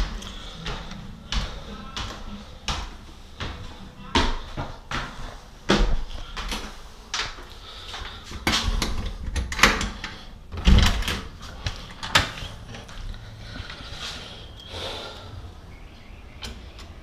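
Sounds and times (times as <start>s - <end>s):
footsteps on stairs: 0.0s - 9.2s.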